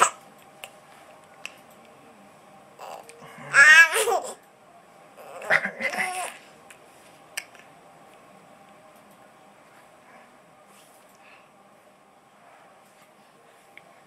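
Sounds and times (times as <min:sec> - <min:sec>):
infant laughing: 0:05.2 - 0:06.4.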